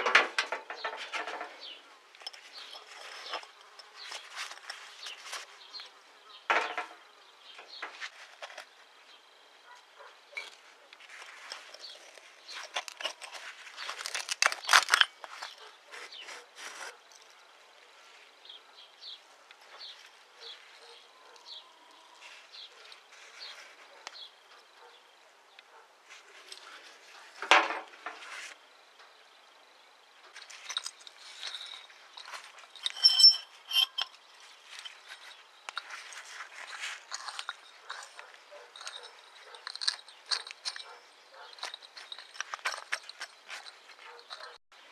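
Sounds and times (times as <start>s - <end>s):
metal parts clicking and scraping: 0.0s - 5.8s, 6.5s - 7.0s, 10.3s - 17.4s, 30.3s - 44.6s.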